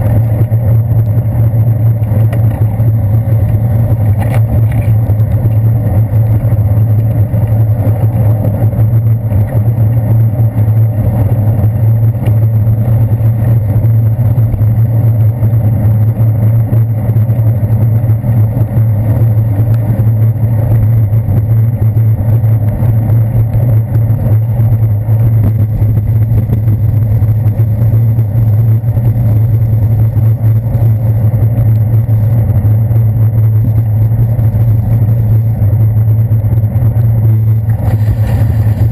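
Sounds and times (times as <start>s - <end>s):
wind and road rumble: 0.0s - 38.9s
traffic noise: 33.3s - 38.9s.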